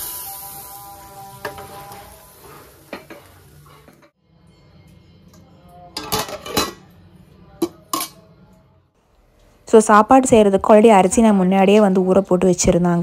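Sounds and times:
metal pots and utensils clanking: 0:05.9 - 0:06.9.

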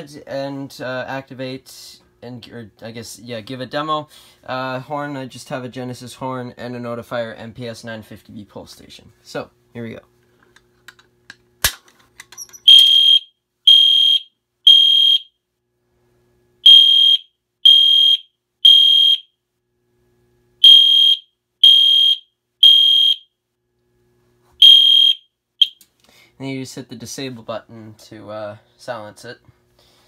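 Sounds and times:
fire alarm horn blasts: 0:12.7 - 0:15.4, 0:16.6 - 0:19.4, 0:20.6 - 0:23.4, 0:24.6 - 0:25.8.

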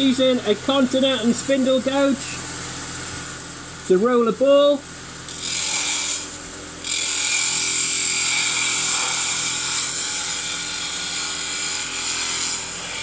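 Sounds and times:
gouge cutting wood on lathe: 0:05.3 - 0:13.0
lathe motor humming: 0:05.3 - 0:13.0.

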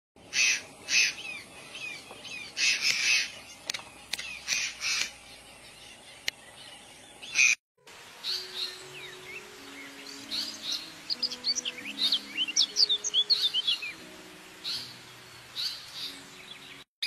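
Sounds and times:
sharp clicks: 0:02.8 - 0:05.2.

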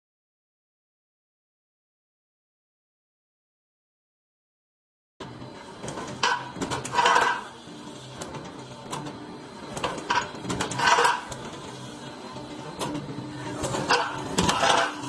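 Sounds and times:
metal clanks and clatter: 0:05.9 - 0:07.5, 0:09.7 - 0:11.5, 0:13.6 - 0:15.0.

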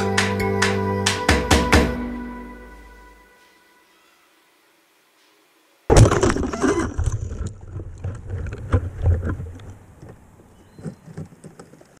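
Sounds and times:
drone crashing into branches: 0:05.9 - 0:07.5
knocks and rustling in tree: 0:05.9 - 0:12.0.

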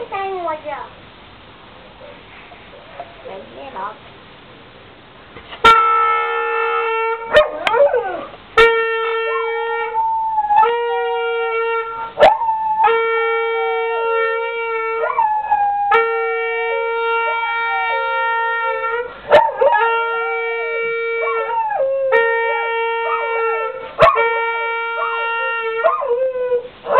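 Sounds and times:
horn long steady notes: 0:05.6 - 0:12.2, 0:12.8 - 0:26.9
dog howling: 0:06.8 - 0:08.4, 0:09.0 - 0:24.3, 0:24.9 - 0:26.9.

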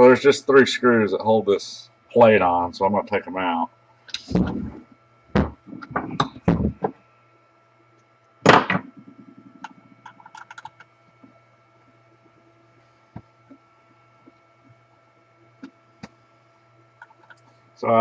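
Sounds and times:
steady electrical hum: 0:00.0 - 0:18.0.

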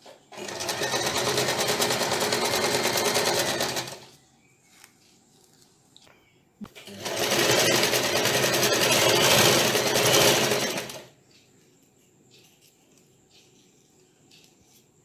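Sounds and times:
sewing machine stitching: 0:00.0 - 0:04.1, 0:06.8 - 0:11.1.

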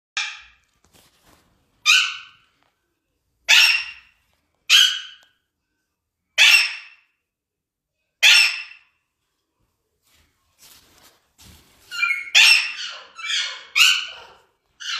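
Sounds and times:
parakeet harsh calls: 0:01.8 - 0:02.4, 0:03.5 - 0:05.2, 0:06.4 - 0:07.0, 0:08.2 - 0:08.8, 0:11.9 - 0:14.9.

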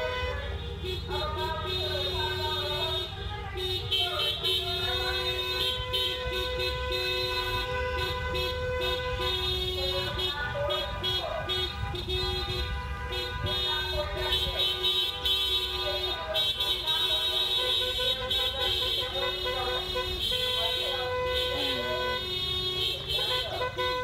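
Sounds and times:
car horn long blast: 0:00.0 - 0:24.0
car horn short toots: 0:00.0 - 0:24.0
car horns honking: 0:00.0 - 0:24.0.

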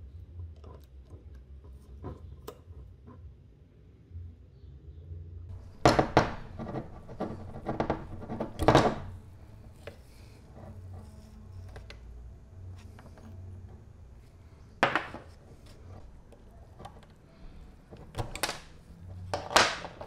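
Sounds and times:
metallic clattering and knocks: 0:05.5 - 0:12.0.

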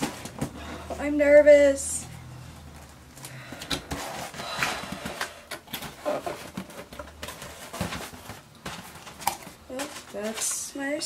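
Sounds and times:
cardboard and paper rustling: 0:00.0 - 0:01.2, 0:02.8 - 0:11.0.

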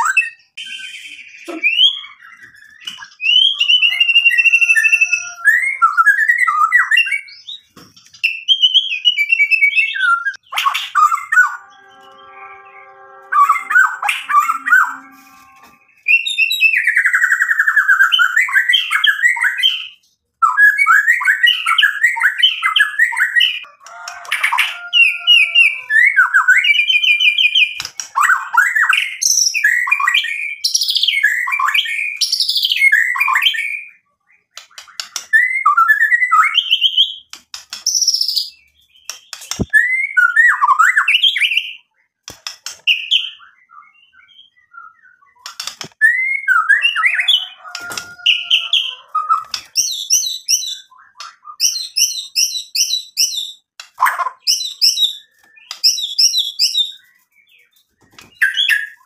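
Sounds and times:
bird singing whistles and trills: 0:00.0 - 0:23.6, 0:37.9 - 0:42.0, 0:42.9 - 0:59.0.

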